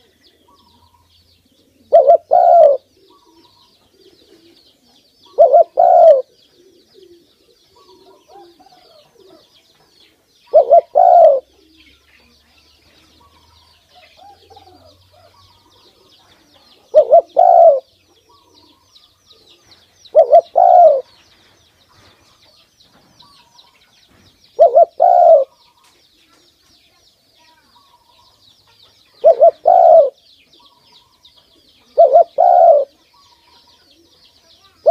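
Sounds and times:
dove cooing: 0.0 - 9.6, 10.5 - 12.3, 13.1 - 21.1, 24.6 - 25.6, 29.1 - 34.9.

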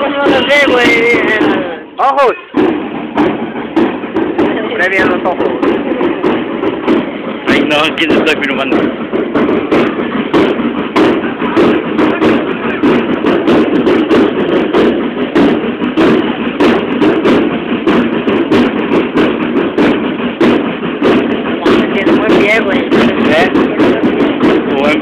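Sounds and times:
low din: 0.0 - 25.0
parade drums beating: 0.0 - 25.0.

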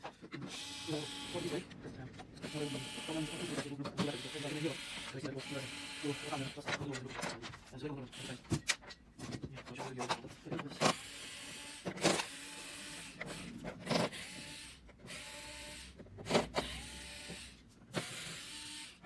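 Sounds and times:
drill motor whirring: 0.4 - 1.8, 2.4 - 6.8, 8.1 - 8.7, 10.9 - 19.0.

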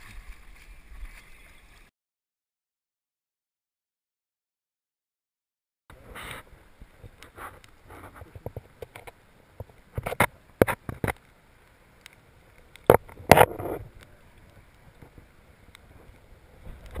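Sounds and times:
underwater splashing and knocking: 0.0 - 1.9.

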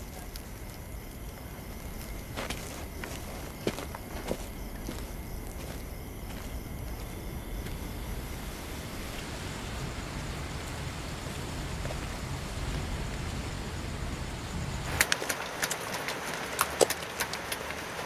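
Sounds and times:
low night ambience: 0.0 - 18.0
small sharp clicks and ticks: 14.9 - 18.0.

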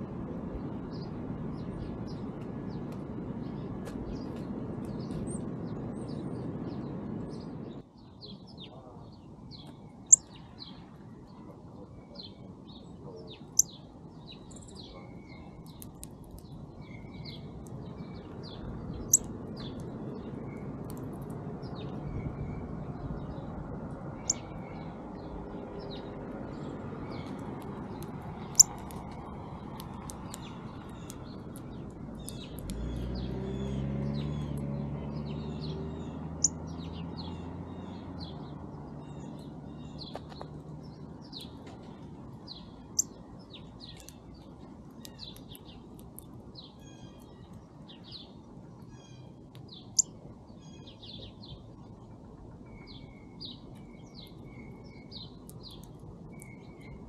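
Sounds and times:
songbirds chirping: 0.0 - 57.0
low engine hum: 14.3 - 57.0.

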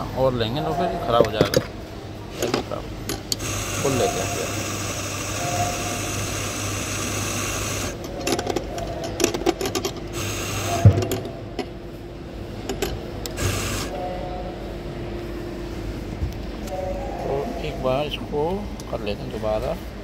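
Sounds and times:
coffee grinder motor grinding: 3.3 - 8.0, 9.7 - 10.9, 13.3 - 13.9.

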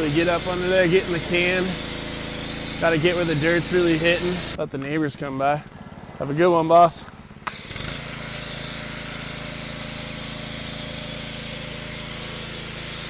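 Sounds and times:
motor and pump humming: 0.0 - 4.6, 7.0 - 13.0
pressure washer spray hiss: 0.0 - 4.6, 7.4 - 13.0.

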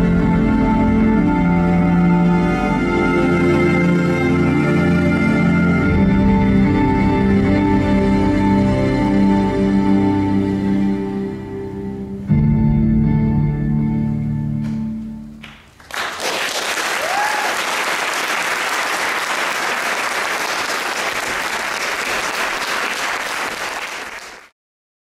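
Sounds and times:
slow music chords: 0.0 - 15.5
audience applause: 15.4 - 24.6.

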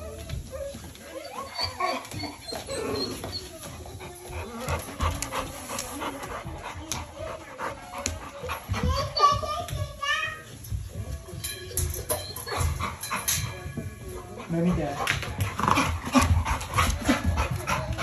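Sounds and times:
dog whining: 0.0 - 5.1, 11.8 - 13.1
dog panting: 0.5 - 9.8, 11.9 - 18.0.

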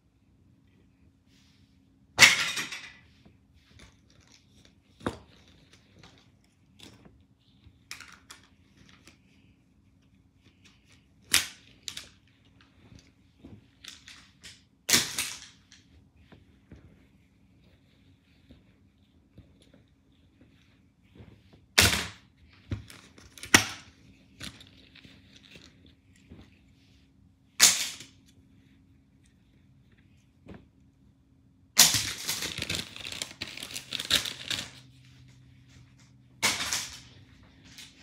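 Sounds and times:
fabric rustling: 8.5 - 14.9, 15.5 - 27.5.

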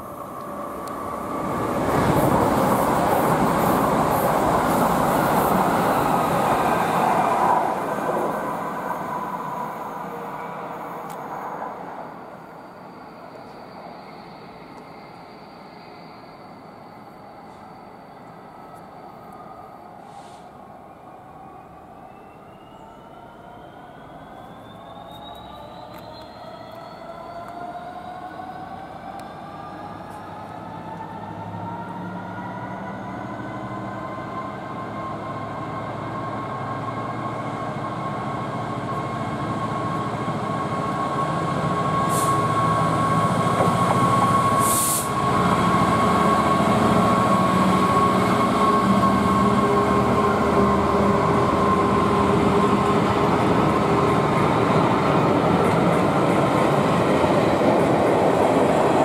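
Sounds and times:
passenger train passing: 0.0 - 59.0
high hisses: 44.6 - 45.2.

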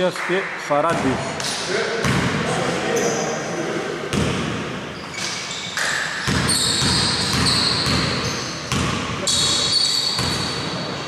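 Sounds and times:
high squeaks: 5.0 - 8.6, 9.2 - 10.6
basketball bouncing on hardwood floor: 6.2 - 9.1.

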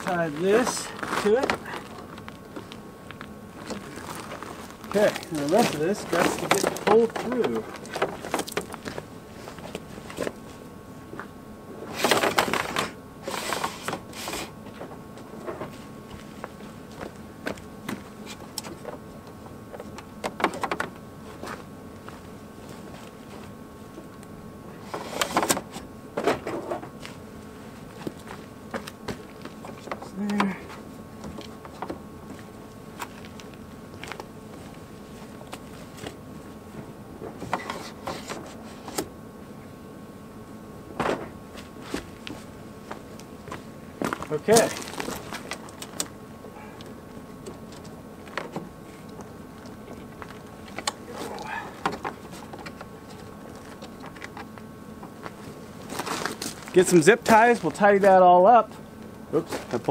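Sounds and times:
cable clicks and rustles: 0.0 - 10.4, 41.6 - 46.2, 46.8 - 59.9
faint steady hum: 0.0 - 59.9.

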